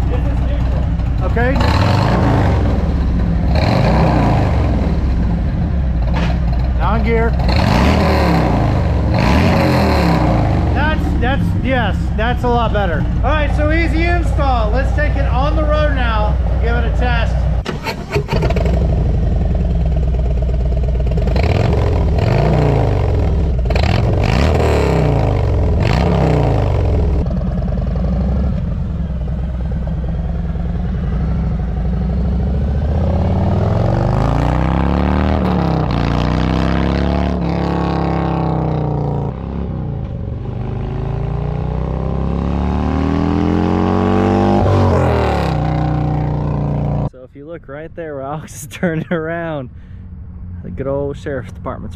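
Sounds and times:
motorcycle engine revving: 0:00.0 - 0:47.2
motorcycle riding past: 0:18.4 - 0:47.1.

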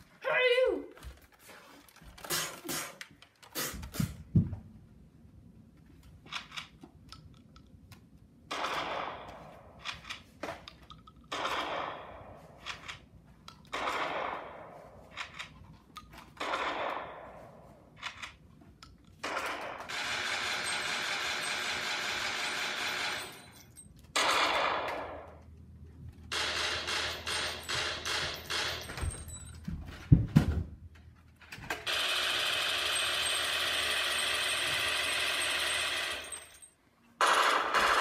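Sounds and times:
rapid gunfire rattle: 0:08.5 - 0:09.4, 0:11.3 - 0:12.3, 0:13.7 - 0:15.4, 0:16.4 - 0:17.4, 0:19.2 - 0:23.6, 0:26.3 - 0:28.8, 0:31.8 - 0:36.5, 0:37.2 - 0:38.0.

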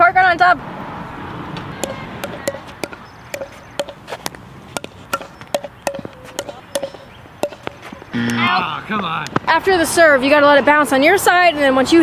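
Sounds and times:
ball bouncing on hard court: 0:01.8 - 0:08.1
paddles striking plastic ball: 0:01.8 - 0:08.1.

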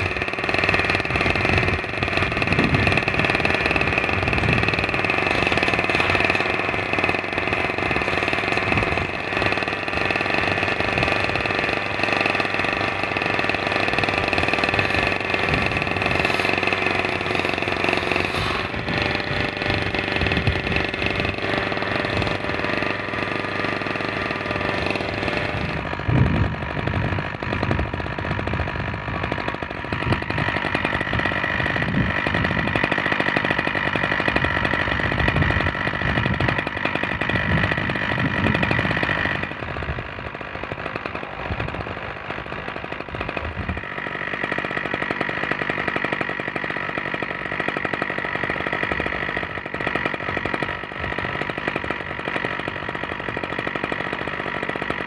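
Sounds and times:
engine idling: 0:00.0 - 0:55.0
hand digging and scraping: 0:14.9 - 0:19.3.

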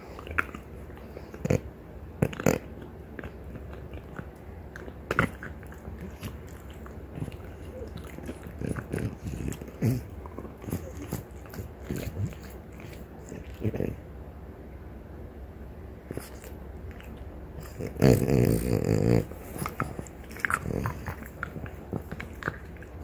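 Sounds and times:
dog gnawing on antler: 0:02.2 - 0:13.9, 0:16.2 - 0:23.0.

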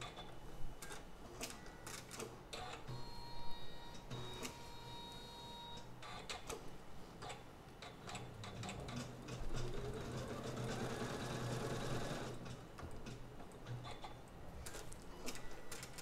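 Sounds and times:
sewing machine motor hum: 0:08.2 - 0:12.4.

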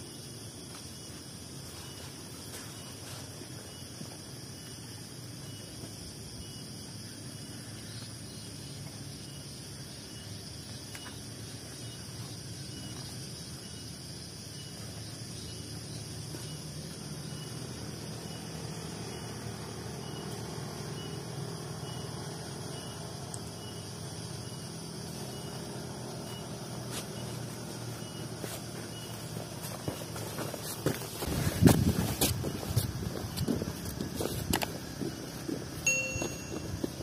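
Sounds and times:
insects chirring: 0:00.0 - 0:37.0
faint high chirp: 0:35.9 - 0:37.0.

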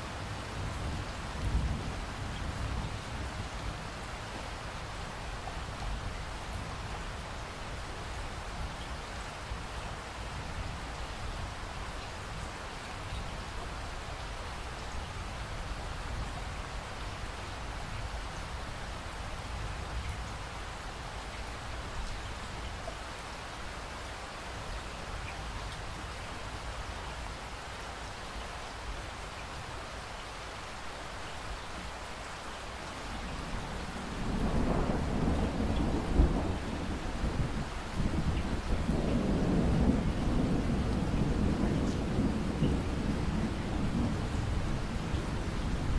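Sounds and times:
steady rain falling: 0:00.0 - 0:45.9
thunder rumble and crack: 0:34.2 - 0:45.9.

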